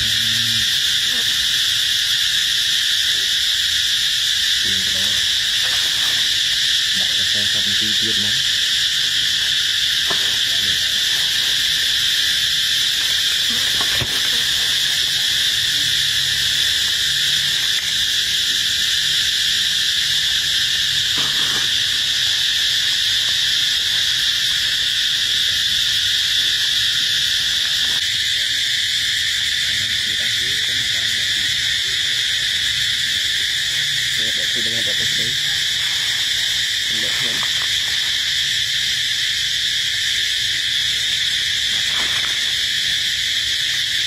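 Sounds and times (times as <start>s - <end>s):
high-pitched insect chorus: 0.0s - 44.0s.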